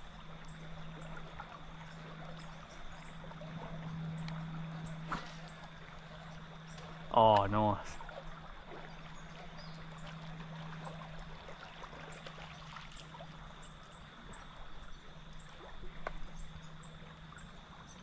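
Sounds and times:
low steady hum: 0.0 - 18.0
water trickling: 0.0 - 18.0
small ticks: 4.0 - 7.6.

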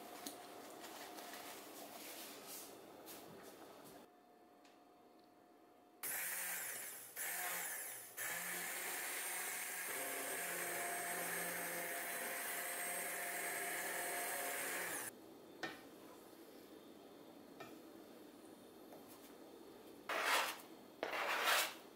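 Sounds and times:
stick blender running: 6.0 - 15.1.

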